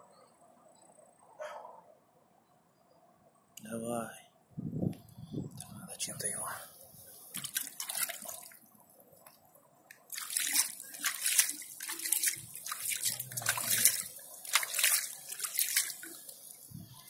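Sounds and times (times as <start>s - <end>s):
hand splashing shallow water: 7.3s - 8.6s, 9.9s - 16.6s.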